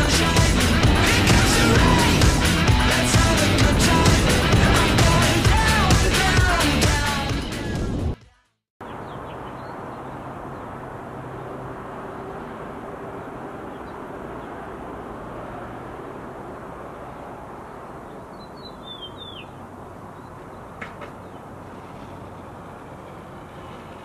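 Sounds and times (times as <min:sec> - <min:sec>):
low background rush: 0:00.0 - 0:07.6
bird chirping: 0:08.8 - 0:10.3, 0:18.1 - 0:21.5.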